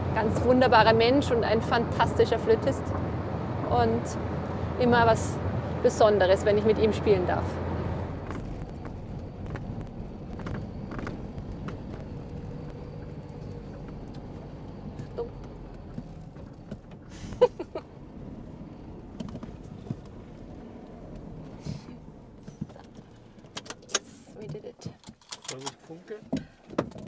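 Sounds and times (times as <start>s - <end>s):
engine and road rumble: 0.0s - 27.0s.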